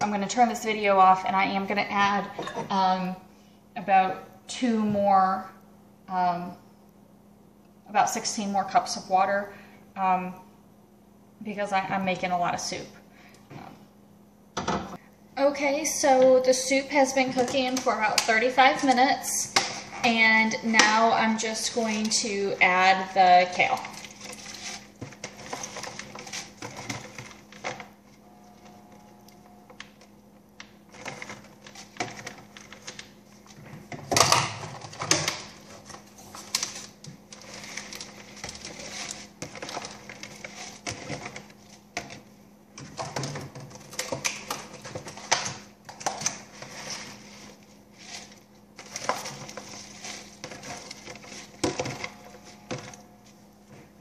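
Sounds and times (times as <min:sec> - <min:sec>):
faint steady hum: 0:00.0 - 0:54.0
plastic container crinkling: 0:17.1 - 0:28.2, 0:29.8 - 0:53.2.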